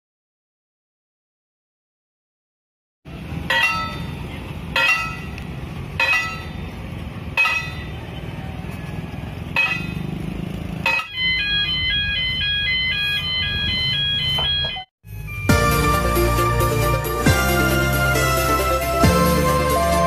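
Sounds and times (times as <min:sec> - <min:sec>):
level crossing bell strikes: 0:03.5 - 0:04.2, 0:04.8 - 0:05.4, 0:06.0 - 0:06.6, 0:07.4 - 0:08.0, 0:10.8 - 0:15.7
electronic crossing alarm tones: 0:10.8 - 0:16.6.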